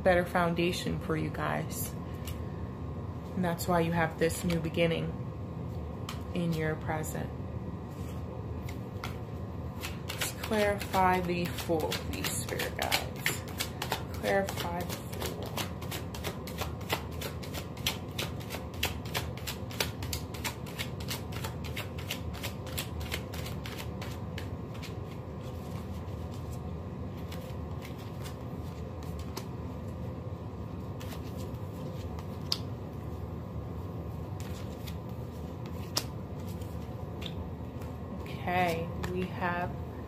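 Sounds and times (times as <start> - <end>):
steady low hum: 0.0 - 40.0
cards being shuffled: 7.9 - 30.0, 30.7 - 33.1, 34.3 - 38.0.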